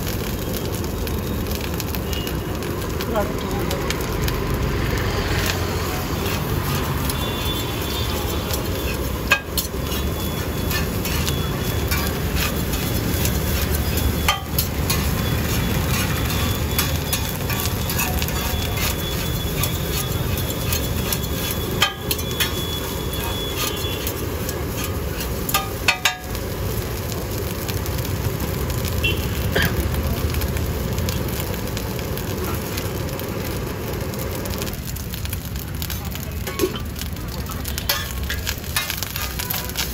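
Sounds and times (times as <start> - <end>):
wok sizzling: 0.0 - 39.9
gas burner flame rushing: 3.8 - 28.8.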